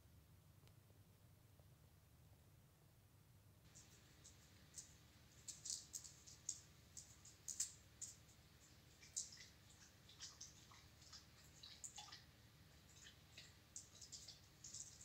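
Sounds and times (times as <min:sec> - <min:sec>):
dog lapping water: 0:09.0 - 0:15.0.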